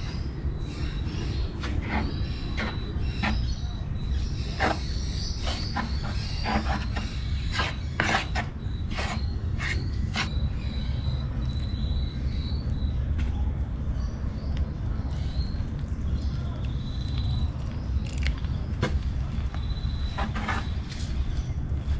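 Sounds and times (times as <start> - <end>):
spoon scraping wooden bowl: 4.5 - 10.4, 20.0 - 21.2.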